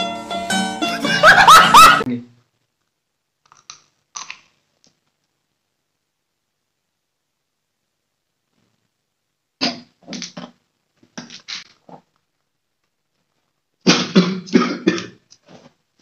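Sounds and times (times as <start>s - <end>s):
man coughing: 13.9s - 15.2s.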